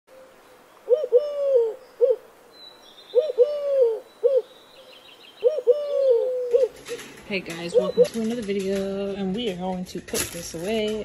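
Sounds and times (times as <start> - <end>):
dove cooing: 0.1 - 2.3, 3.1 - 8.5.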